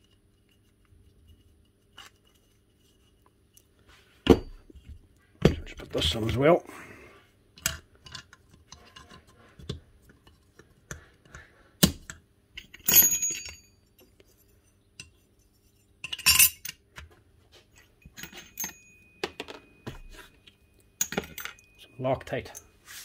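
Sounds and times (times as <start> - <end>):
metal parts clinking and knocking: 7.6 - 17.1, 17.7 - 22.7.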